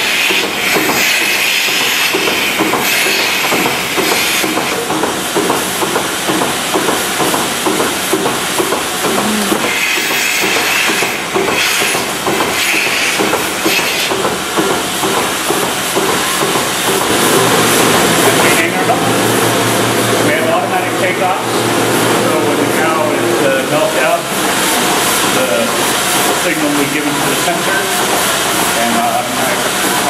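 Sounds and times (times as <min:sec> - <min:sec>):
hissing air bursts: 0:00.0 - 0:05.4, 0:07.9 - 0:18.6
milking machine pulsation: 0:00.0 - 0:30.0.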